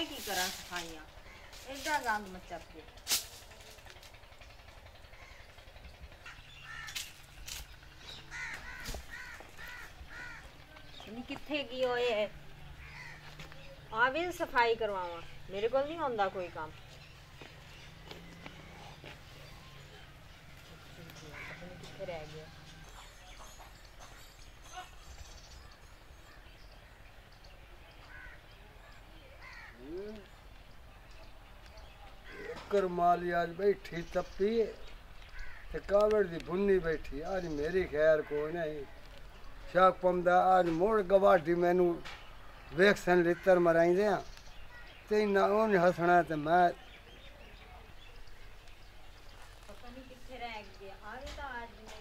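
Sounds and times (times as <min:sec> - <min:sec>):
crow cawing: 0:01.2 - 0:01.7, 0:05.1 - 0:05.6, 0:06.2 - 0:07.2, 0:08.1 - 0:10.6, 0:12.8 - 0:13.5, 0:21.2 - 0:22.0, 0:28.0 - 0:28.5, 0:29.4 - 0:30.0, 0:32.2 - 0:32.7, 0:35.3 - 0:35.8.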